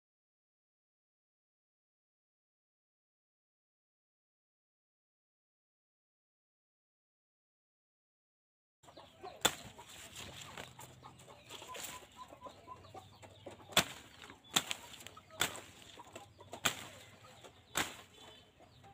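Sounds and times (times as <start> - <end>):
chickens clucking: 8.8 - 18.9.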